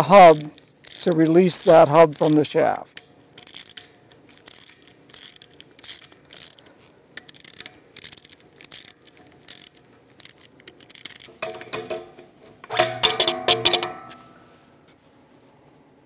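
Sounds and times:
ratchet wrench clicking: 0:00.0 - 0:12.0.

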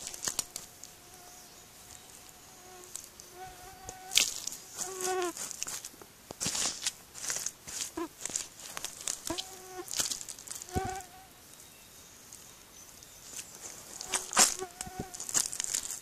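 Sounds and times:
boots squelching in mud: 0:04.1 - 0:11.0, 0:13.5 - 0:16.0.

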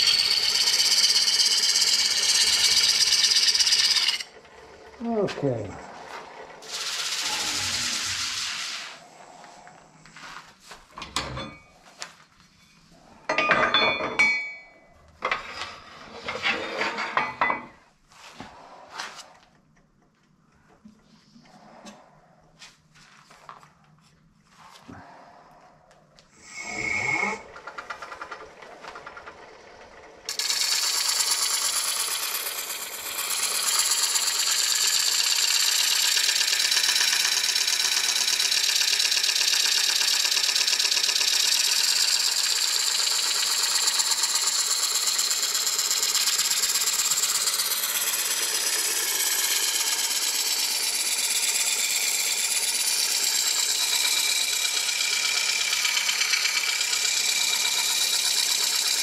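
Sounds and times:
turning tool cutting wood hiss: 0:00.0 - 0:04.4, 0:06.5 - 0:09.1, 0:26.3 - 0:29.4, 0:30.3 - 0:59.0
wood lathe whine: 0:00.0 - 0:09.0, 0:26.4 - 0:59.0.

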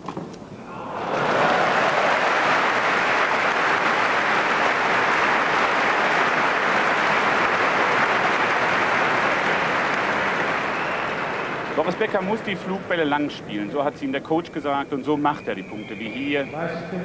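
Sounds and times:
crowd applauding: 0:00.7 - 0:14.1.

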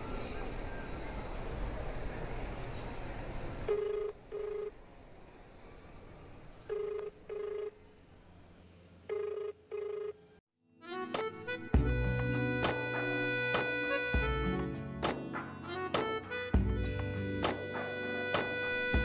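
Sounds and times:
telephone ringback beeps: 0:03.7 - 0:04.7, 0:06.7 - 0:07.8, 0:09.1 - 0:10.2.

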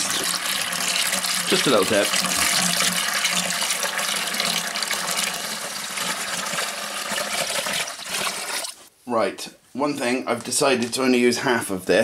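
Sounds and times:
water pouring into a bucket: 0:00.0 - 0:08.8.

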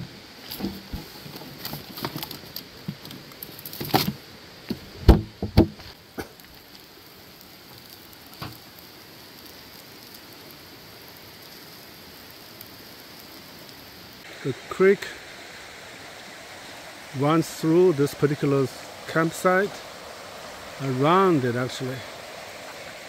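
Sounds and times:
creek running: 0:00.0 - 0:23.0
rummaging in plastic cooler: 0:00.5 - 0:02.5.

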